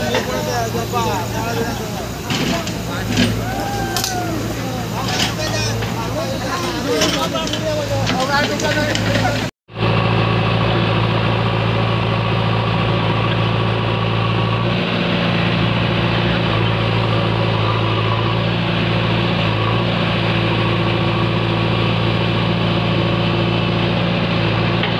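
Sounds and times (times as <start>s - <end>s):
diesel engine running at low revs: 0.0s - 24.9s.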